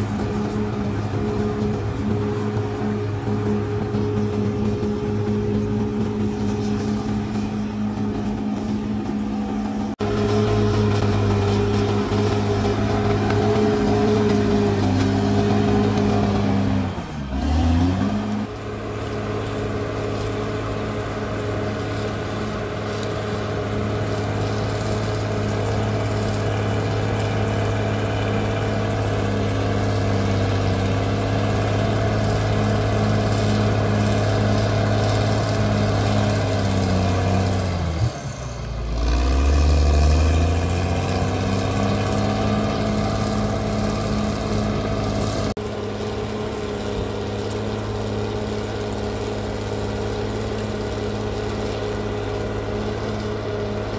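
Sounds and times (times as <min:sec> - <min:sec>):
bulldozer diesel engine running: 0:00.0 - 0:53.9.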